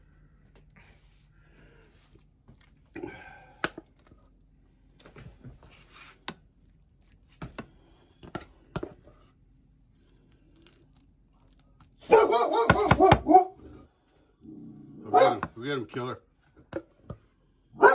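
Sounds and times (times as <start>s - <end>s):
mashed potatoes squelching: 0.2s - 12.3s.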